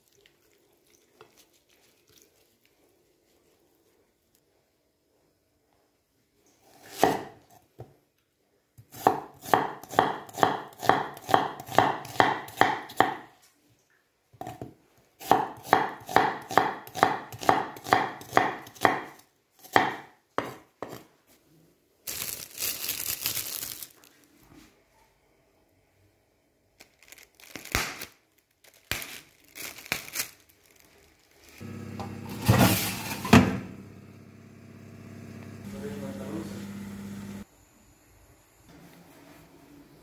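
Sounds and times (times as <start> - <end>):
knife chopping on wooden board: 8.9 - 13.2, 15.2 - 21.0
plastic bag crinkling: 22.0 - 24.4, 26.8 - 31.7.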